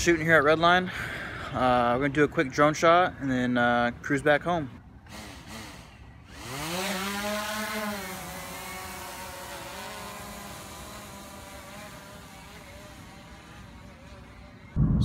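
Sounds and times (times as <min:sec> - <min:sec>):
drone propellers buzzing: 0:05.1 - 0:15.0.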